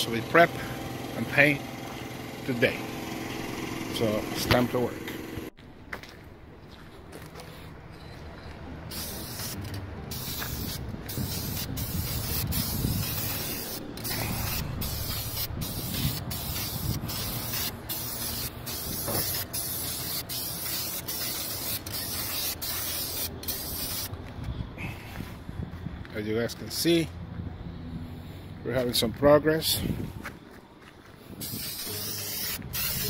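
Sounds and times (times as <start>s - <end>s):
aerosol spray can hissing: 8.9s - 24.1s, 31.4s - 33.0s.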